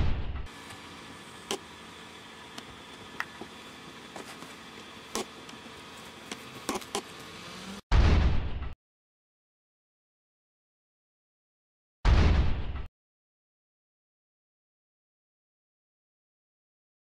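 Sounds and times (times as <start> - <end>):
outdoor background: 0.0 - 8.8.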